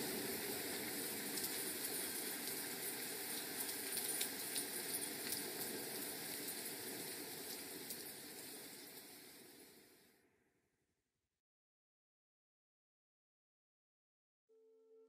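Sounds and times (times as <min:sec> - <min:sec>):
faint scattered crackles: 0:00.0 - 0:10.2
rain-like hiss: 0:00.0 - 0:10.4.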